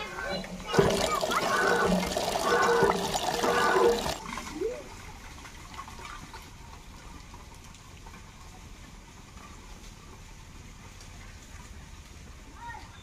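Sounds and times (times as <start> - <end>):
hand pump squeaking: 0.0 - 4.2
water gushing into metal pot: 0.0 - 4.7.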